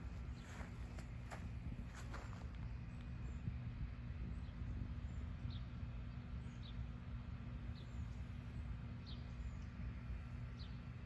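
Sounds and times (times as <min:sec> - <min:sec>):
bird chirping: 0:00.0 - 0:01.0, 0:04.2 - 0:11.0
low outdoor rumble: 0:00.0 - 0:11.0.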